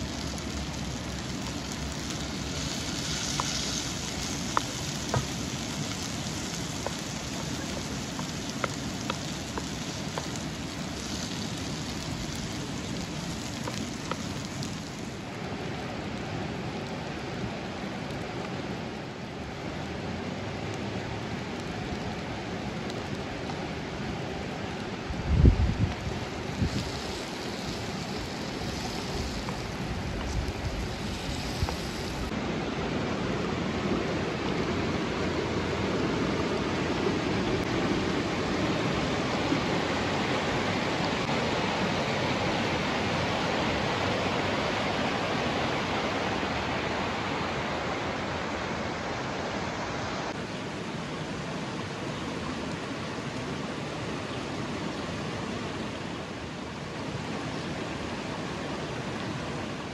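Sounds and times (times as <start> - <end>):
river water rushing: 26.0 - 59.9.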